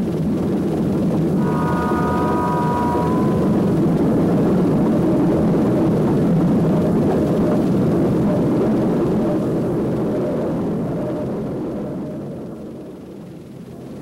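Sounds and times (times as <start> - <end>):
diesel locomotive rumble: 0.1 - 14.0
train horn chord: 1.3 - 5.4.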